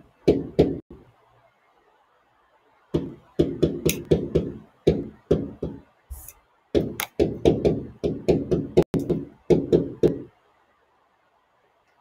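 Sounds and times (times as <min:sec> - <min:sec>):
marker tapping on whiteboard: 0:00.2 - 0:00.9, 0:03.0 - 0:05.9, 0:06.7 - 0:10.3.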